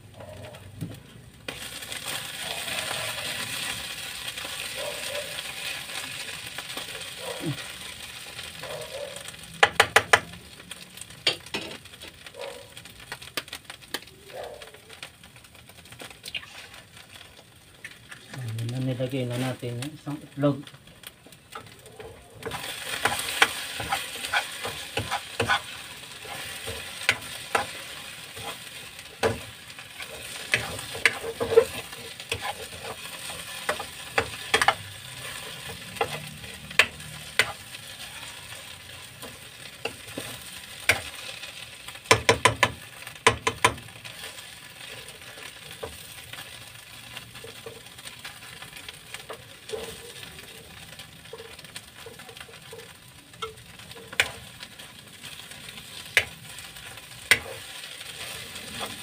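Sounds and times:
fish mixture sizzling in a pan: 0.9s - 59.0s
metal spatula scraping a pan: 2.0s - 4.6s, 11.2s - 12.1s, 21.6s - 46.5s, 47.4s - 59.0s
spatula tapping a pan: 9.6s - 10.4s, 22.4s - 25.7s, 28.4s - 29.5s, 30.3s - 34.9s, 36.0s - 37.6s, 42.0s - 43.9s, 57.3s - 57.6s.

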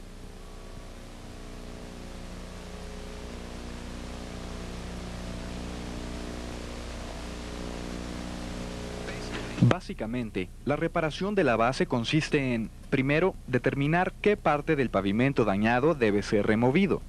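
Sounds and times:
loader engine droning: 0.0s - 9.7s.

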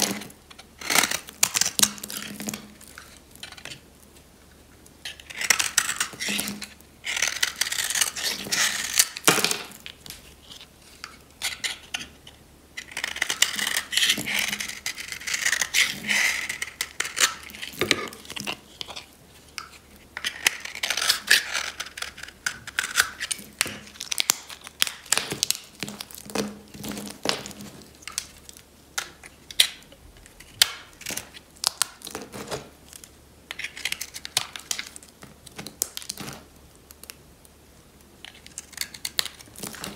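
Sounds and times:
knife blade scraping soap: 0.0s - 3.8s, 5.0s - 9.2s, 10.5s - 19.1s, 19.7s - 23.8s.

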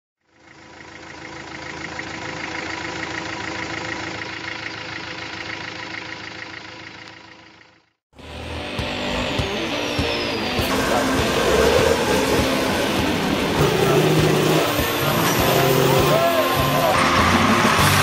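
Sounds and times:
engine idling with clatter: 0.2s - 8.0s.

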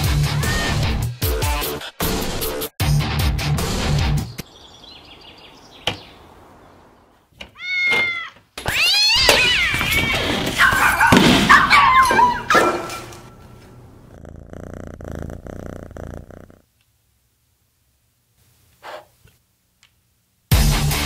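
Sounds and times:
cats yowling and meowing: 7.6s - 12.5s.

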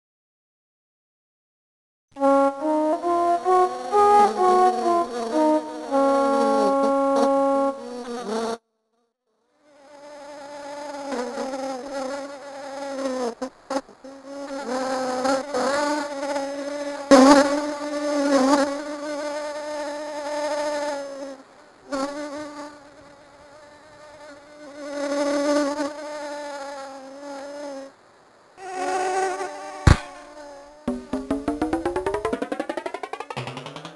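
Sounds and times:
music with brass-like tones: 2.2s - 7.8s
flying insect buzz: 2.2s - 28.0s, 28.6s - 31.0s
sharp taps: 30.9s - 33.9s.

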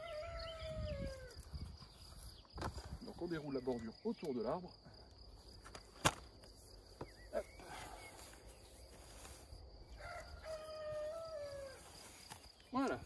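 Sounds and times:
rooster crowing: 0.0s - 1.4s, 9.9s - 12.0s.

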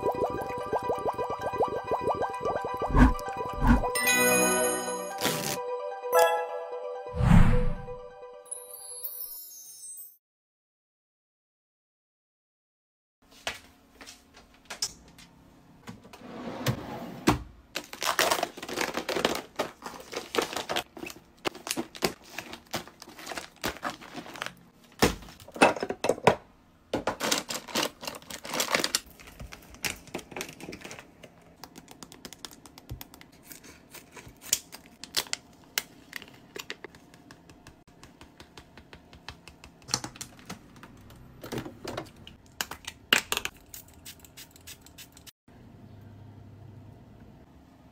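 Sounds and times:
foil sachets crinkling: 17.8s - 24.6s, 27.2s - 31.1s.

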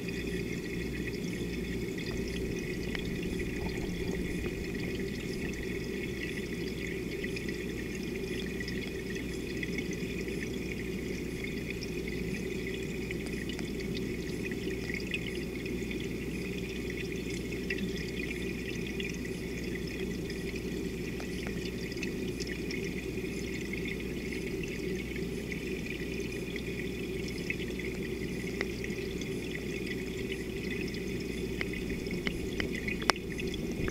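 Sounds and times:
faint underwater clicks: 0.1s - 7.6s, 30.8s - 33.9s
muffled underwater rush: 0.1s - 8.4s, 31.0s - 33.9s.

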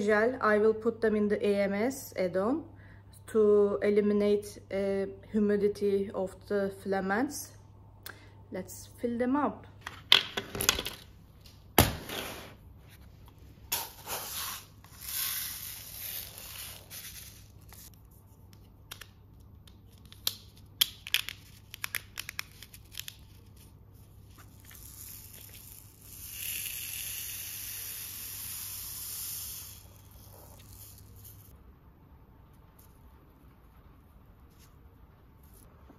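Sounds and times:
beads rattling as poured: 24.4s - 31.5s.

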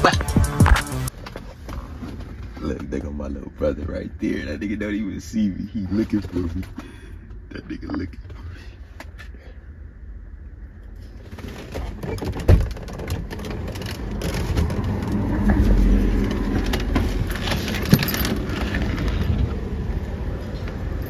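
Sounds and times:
outdoor street noise: 0.0s - 21.0s.

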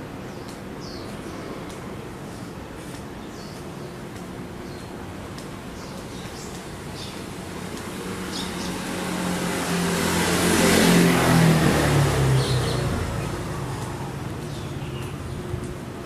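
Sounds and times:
motor vehicle passing: 6.0s - 16.0s.

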